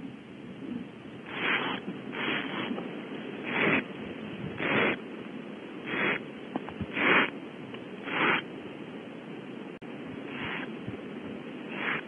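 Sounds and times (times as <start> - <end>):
steady background hiss: 0.0 - 12.0
owlets hissing: 1.2 - 5.1, 5.8 - 7.4, 8.0 - 8.6, 10.2 - 10.9, 11.6 - 12.0.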